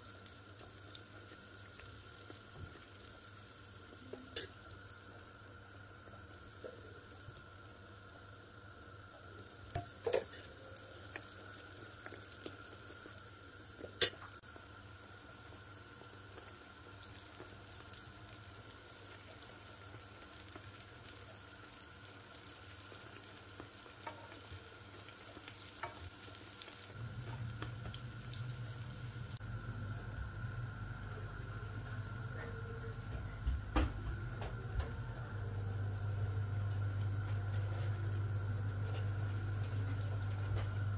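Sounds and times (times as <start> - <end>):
dough sizzling in hot oil: 0.0 - 32.2, 35.7 - 40.9
low hum: 27.0 - 40.9.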